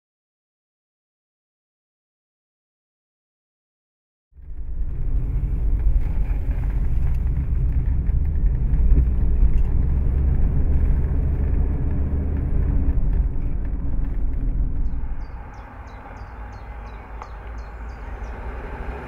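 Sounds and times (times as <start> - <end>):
car engine and road rumble: 4.4 - 19.0.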